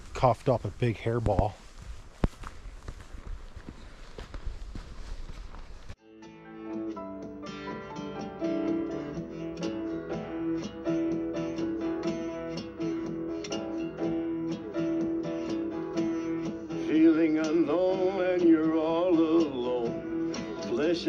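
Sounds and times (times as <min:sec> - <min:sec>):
acoustic guitar music: 0:06.0 - 0:21.0
person singing: 0:16.7 - 0:21.0.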